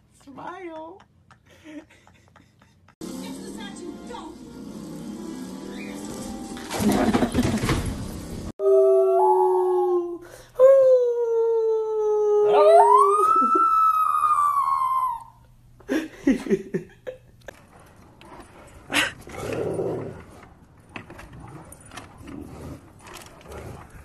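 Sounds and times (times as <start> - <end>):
dog howling: 8.6 - 10.2, 11.2 - 15.4.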